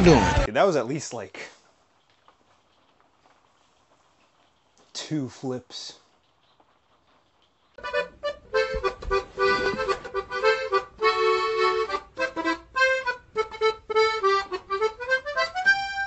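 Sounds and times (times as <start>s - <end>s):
bouncy music with clipped notes: 7.8s - 16.0s.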